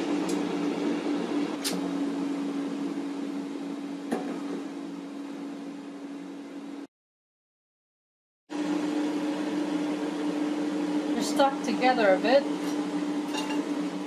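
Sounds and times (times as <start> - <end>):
air fryer fan humming: 0.0 - 6.9, 8.5 - 14.0.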